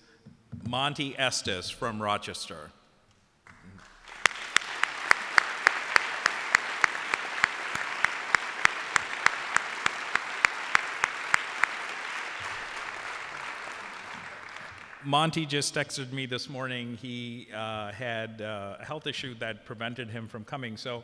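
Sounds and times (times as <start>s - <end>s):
person clapping sharply nearby: 3.5s - 15.1s
audience applauding: 3.5s - 15.5s.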